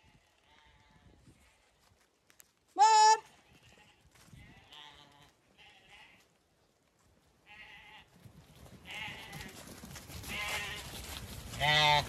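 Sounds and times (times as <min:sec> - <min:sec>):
lambs bleating: 0:00.0 - 0:01.6, 0:03.1 - 0:06.3, 0:07.4 - 0:08.1, 0:08.8 - 0:09.6, 0:10.3 - 0:10.9, 0:11.6 - 0:12.0.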